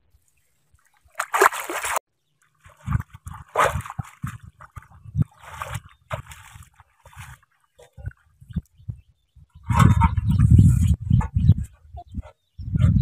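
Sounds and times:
water splashing and sloshing: 0:00.1 - 0:08.8.

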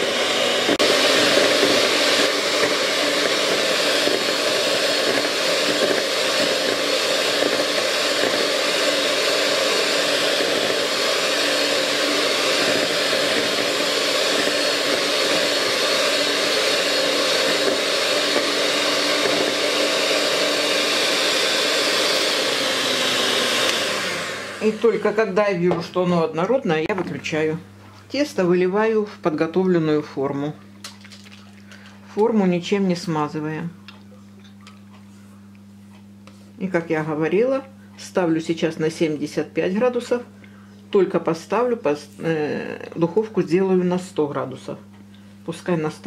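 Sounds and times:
electric hand mixer whirring: 0:00.0 - 0:26.0.

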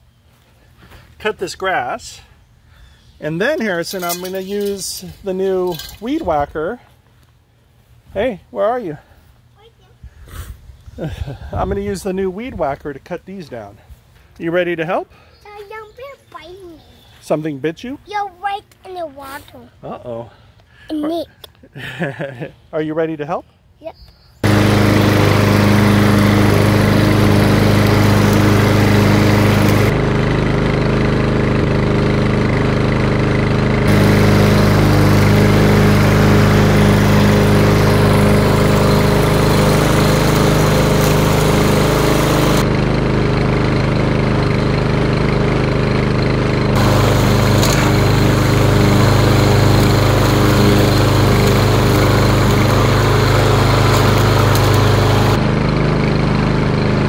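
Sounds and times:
lawn mower running: 0:03.8 - 0:06.2, 0:24.4 - 0:57.0.

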